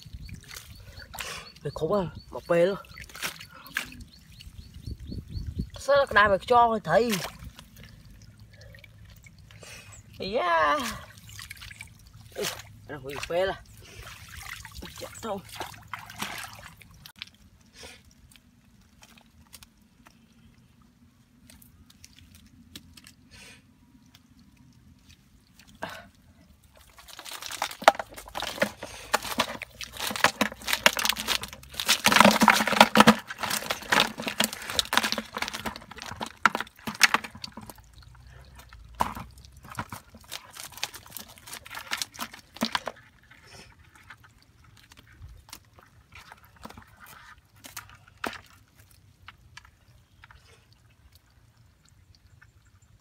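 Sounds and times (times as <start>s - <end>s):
fish trap rattling against bucket: 26.9s - 44.2s.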